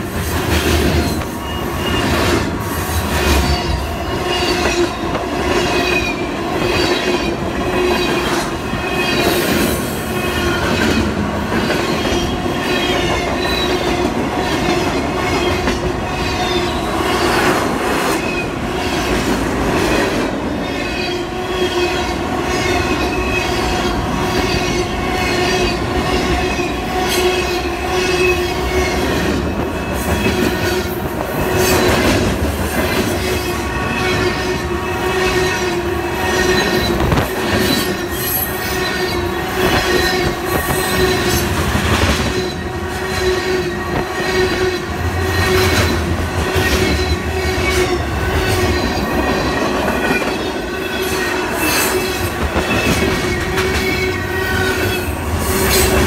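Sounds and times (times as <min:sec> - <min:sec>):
train wheels rumbling on rail: 0:00.0 - 0:56.0.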